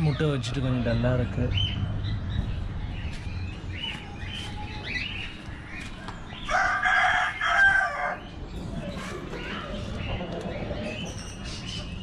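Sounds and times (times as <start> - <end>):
rooster crowing: 6.5 - 8.3.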